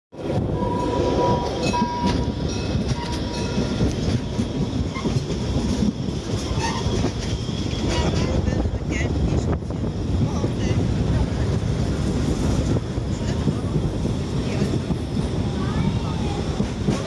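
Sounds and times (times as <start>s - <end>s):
train wheels rumbling on track: 0.1s - 17.0s.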